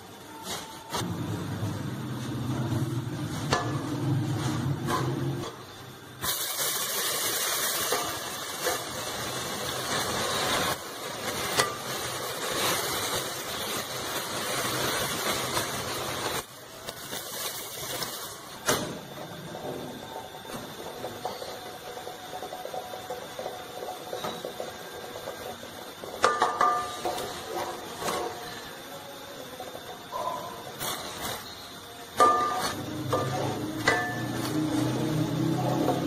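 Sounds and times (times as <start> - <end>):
milk sizzling on hot caramel: 5.6 - 18.6, 19.2 - 36.0.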